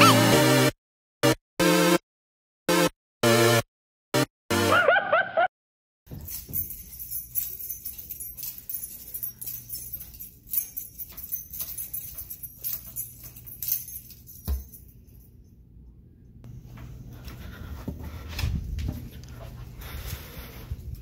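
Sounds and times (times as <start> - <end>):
keys jingling: 6.1 - 15.5.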